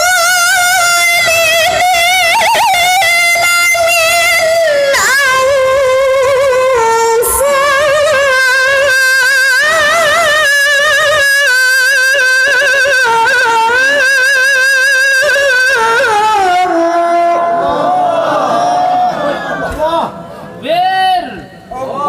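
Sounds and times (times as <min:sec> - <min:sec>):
woman reciting melodically: 0:00.0 - 0:17.5.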